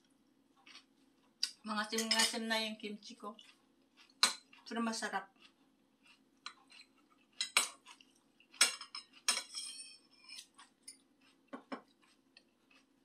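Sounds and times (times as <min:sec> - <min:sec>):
faint steady hum: 0:00.0 - 0:13.0
utensils clinking against a dish: 0:01.9 - 0:02.4, 0:06.5 - 0:07.8, 0:08.6 - 0:11.0.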